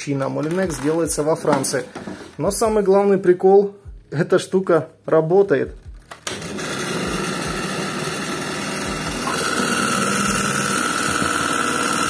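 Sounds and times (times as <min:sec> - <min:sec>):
juicer motor humming with rattle: 0:06.2 - 0:12.0.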